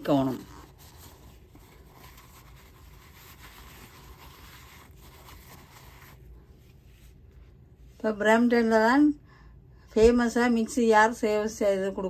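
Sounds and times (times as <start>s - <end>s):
cloth rubbing on plastic: 0.0s - 8.0s.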